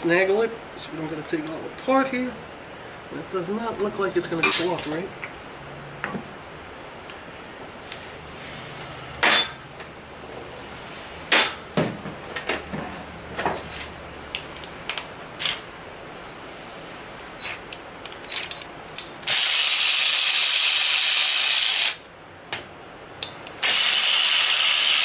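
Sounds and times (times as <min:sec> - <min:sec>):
metal parts clinking and knocking: 0:18.1 - 0:19.2
handheld power tool running: 0:19.2 - 0:22.0, 0:23.6 - 0:25.0.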